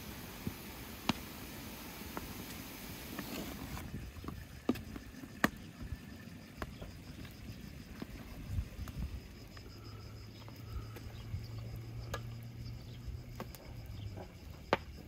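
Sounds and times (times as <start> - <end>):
mixture bubbling in pan: 0.0 - 15.0.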